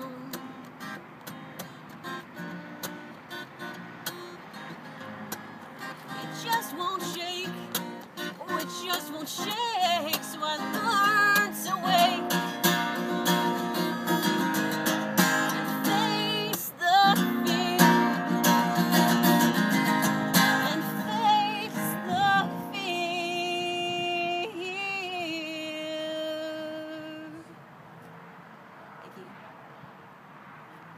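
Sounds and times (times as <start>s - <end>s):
woman singing: 0.0s - 0.6s, 6.0s - 14.2s, 15.5s - 19.2s, 20.4s - 27.5s
acoustic guitar strumming: 0.0s - 27.3s.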